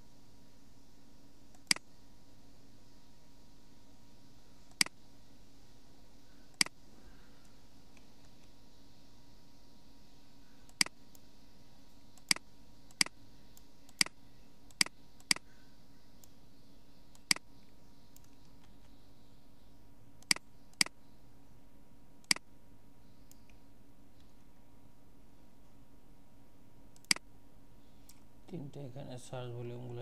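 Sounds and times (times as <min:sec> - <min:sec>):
faint low hum: 0:00.0 - 0:30.0
computer mouse clicking: 0:04.7 - 0:05.0, 0:06.5 - 0:06.8, 0:10.6 - 0:11.3, 0:12.1 - 0:15.5, 0:17.1 - 0:19.0, 0:20.2 - 0:21.0, 0:22.2 - 0:22.4, 0:26.9 - 0:27.2.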